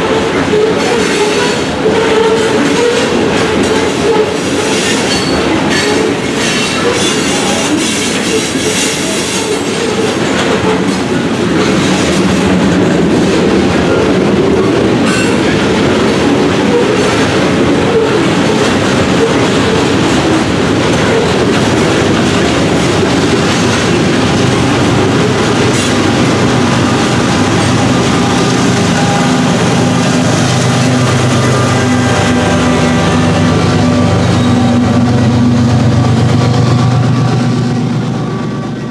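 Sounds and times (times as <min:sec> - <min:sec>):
diesel locomotive drone: 0:00.0 - 0:38.9
train wheels clacking over rail joints: 0:00.0 - 0:38.9
wheel squeal: 0:04.1 - 0:07.6.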